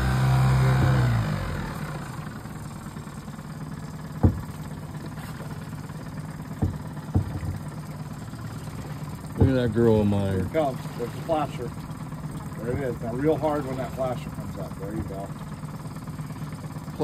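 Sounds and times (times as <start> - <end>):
boat motor idling: 0.0 - 17.0
short knocks: 0.5 - 1.5, 4.1 - 5.7, 6.5 - 7.9, 8.6 - 10.8.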